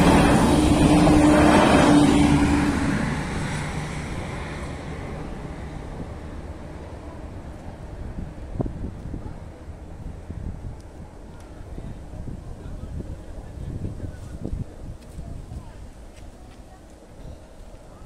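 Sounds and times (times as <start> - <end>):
train wheels and engine passing: 0.0 - 18.0.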